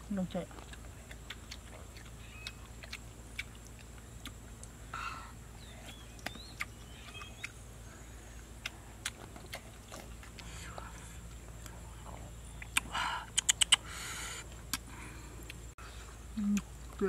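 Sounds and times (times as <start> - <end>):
eating crunches and clicks: 0.2 - 4.9, 5.6 - 7.7, 8.5 - 15.7
faint bird chirps: 2.0 - 2.8, 4.9 - 8.7.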